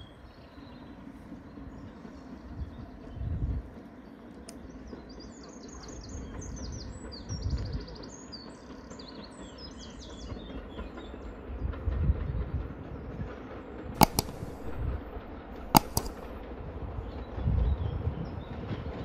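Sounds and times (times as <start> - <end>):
songbirds chirping and trilling: 0.0 - 11.5.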